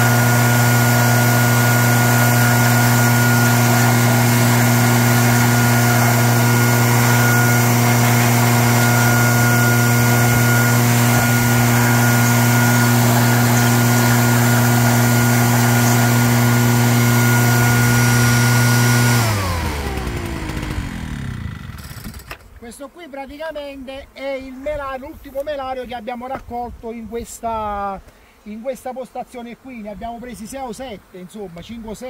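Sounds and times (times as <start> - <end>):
leaf blower running: 0.0 - 22.4.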